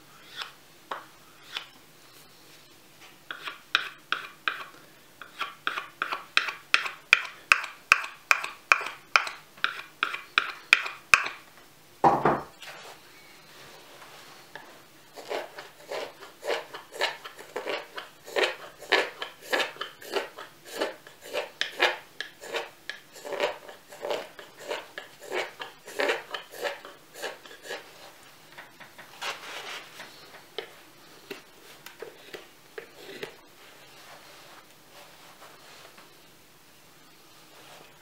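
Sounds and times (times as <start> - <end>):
knife slicing wood shavings: 15.2 - 27.8.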